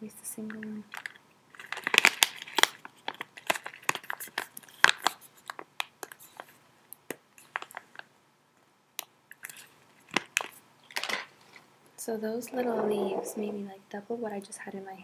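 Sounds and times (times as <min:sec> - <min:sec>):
foil pouch crinkling: 0:01.0 - 0:05.6.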